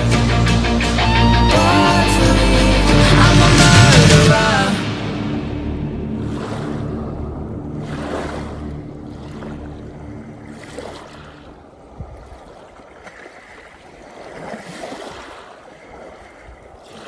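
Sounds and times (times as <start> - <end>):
background music: 0.0 - 10.7
small waves washing onto shore: 4.3 - 17.0.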